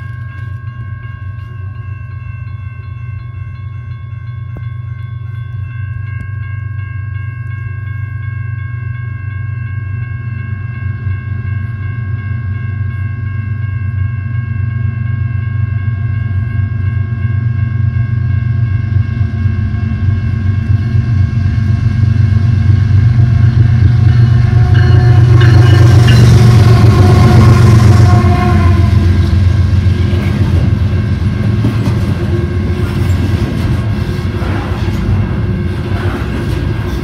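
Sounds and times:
crossing warning bell ringing: 0.0 - 37.0
diesel locomotive rumble: 0.0 - 37.0.

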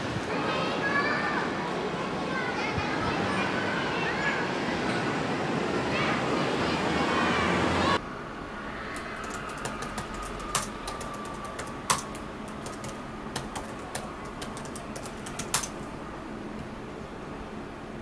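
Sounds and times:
laptop keyboard typing: 8.9 - 15.9.

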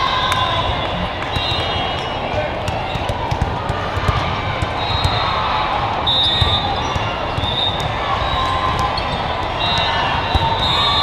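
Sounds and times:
murmur of crowd voices: 0.0 - 11.0
volleyballs bouncing and struck: 0.2 - 10.7.

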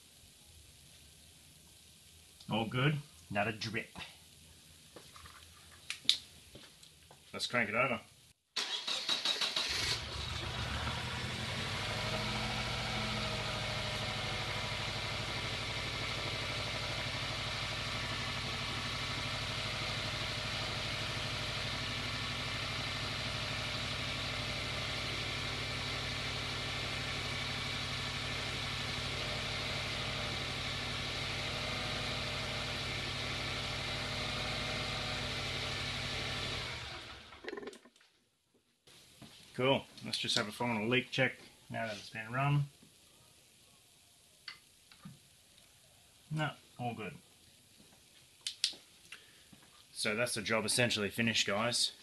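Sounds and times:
car engine cranking and idling: 8.6 - 37.4.

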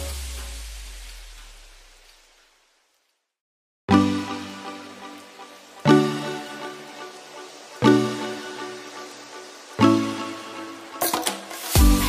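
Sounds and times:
slow music chord: 3.9 - 11.0.

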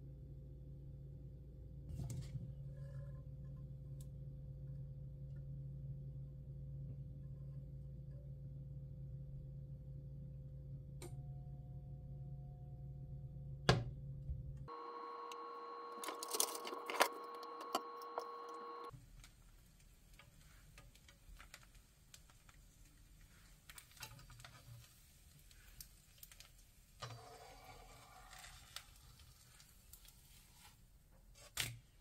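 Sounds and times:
steady hum: 14.7 - 18.9
crepe crackling in frying pan: 14.8 - 31.7
spatula scraping pan: 27.0 - 29.6.

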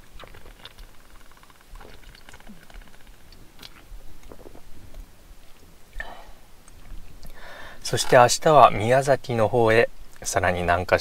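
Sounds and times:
chewing noises: 0.0 - 4.7.

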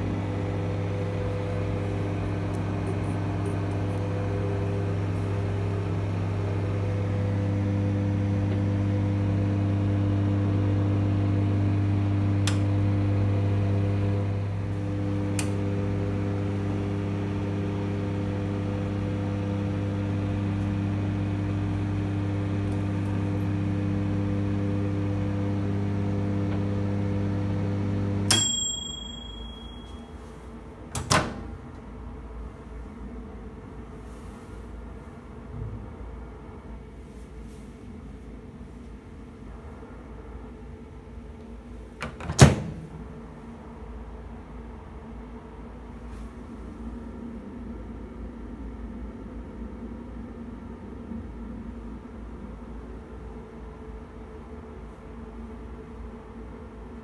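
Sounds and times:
microwave oven humming: 0.0 - 34.2
microwave timer ding: 28.2 - 30.2.

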